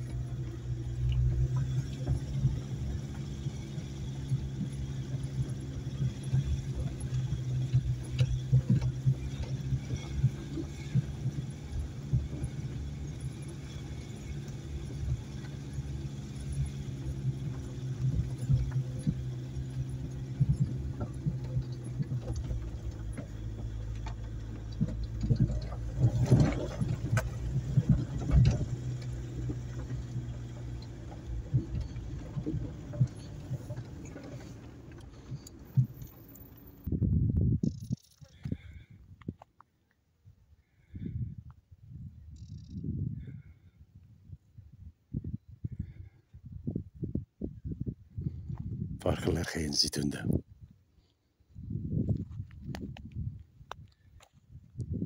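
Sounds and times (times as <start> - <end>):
car engine running: 0.0 - 36.9
knocks and rattles over bumps: 0.0 - 36.9.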